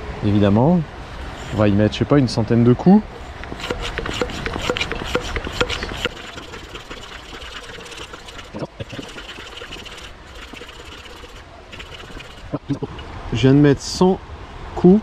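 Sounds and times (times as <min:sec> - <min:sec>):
hand pump strokes: 0:01.4 - 0:01.7, 0:03.4 - 0:13.1.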